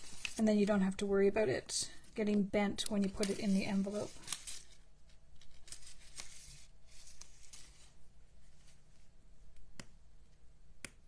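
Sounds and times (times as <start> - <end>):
paper rustling: 0.0 - 0.4, 2.9 - 8.8.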